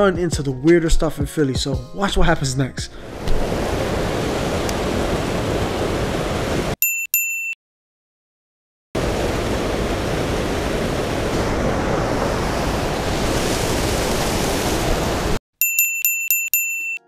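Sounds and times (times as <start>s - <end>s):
creek water rushing over weir: 3.0s - 6.8s, 9.0s - 15.4s
bright bell-like dings: 6.8s - 7.6s, 15.6s - 17.0s.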